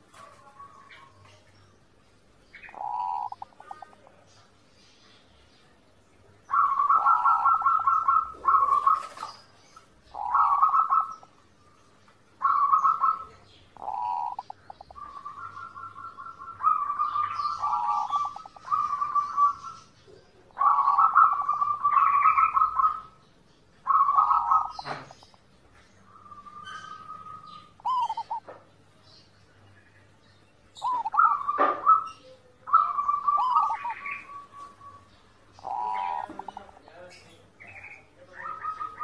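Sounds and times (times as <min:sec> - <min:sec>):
dove cooing: 0:02.6 - 0:04.2, 0:06.5 - 0:11.4, 0:12.4 - 0:23.2, 0:23.8 - 0:25.4, 0:26.1 - 0:28.6, 0:30.8 - 0:36.8, 0:38.2 - 0:39.0.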